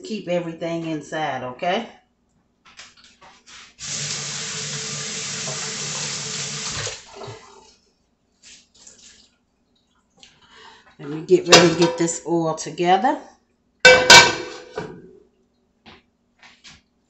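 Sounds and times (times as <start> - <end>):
tap running into sink: 3.9 - 7.3.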